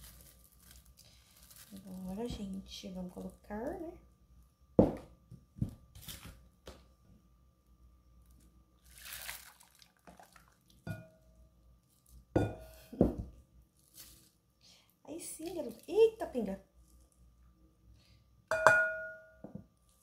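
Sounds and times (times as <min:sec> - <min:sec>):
liquid pouring through funnel: 0:08.8 - 0:10.8.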